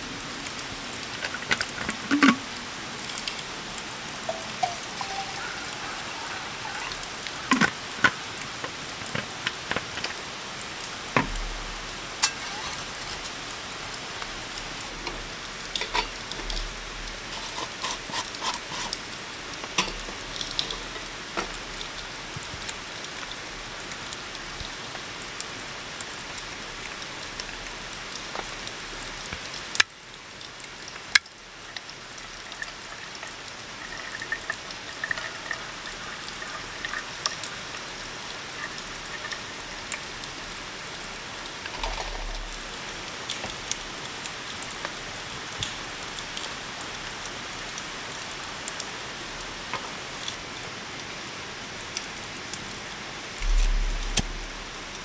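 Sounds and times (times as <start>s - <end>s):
steady rain falling: 0.0s - 55.0s
camp cookware clicking and knocking: 4.3s - 5.4s.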